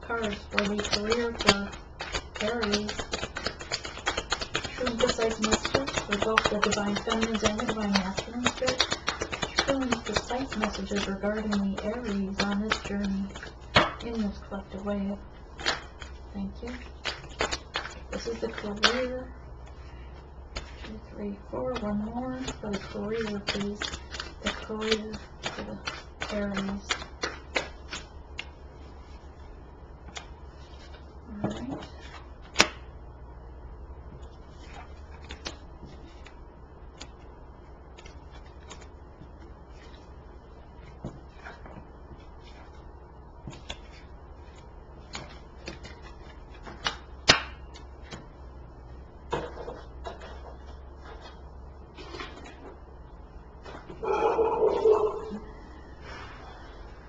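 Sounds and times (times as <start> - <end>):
steady low hum: 0.0 - 57.0
cards shuffled and dealt: 0.1 - 14.8, 15.6 - 19.8, 20.5 - 21.0, 21.6 - 29.2, 30.1 - 32.8, 34.2 - 37.3, 37.9 - 40.1, 43.4 - 48.3, 49.3 - 51.4, 52.0 - 52.7.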